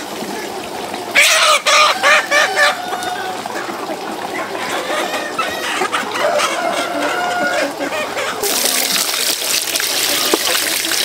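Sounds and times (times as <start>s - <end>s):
chickens clucking: 0.2s - 9.1s
loud pulsing chicken call: 1.2s - 3.5s, 4.6s - 8.5s.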